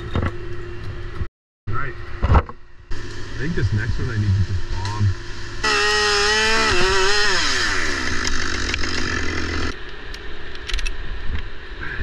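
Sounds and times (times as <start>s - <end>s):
chainsaw cutting wood: 5.6s - 9.8s.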